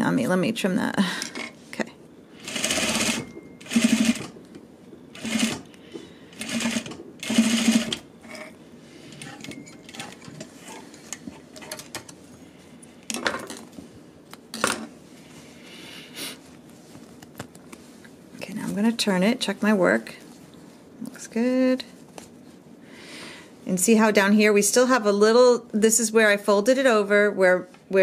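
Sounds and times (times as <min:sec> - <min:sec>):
sewing machine stitching: 0:02.4 - 0:04.4, 0:05.2 - 0:05.6, 0:06.4 - 0:08.0.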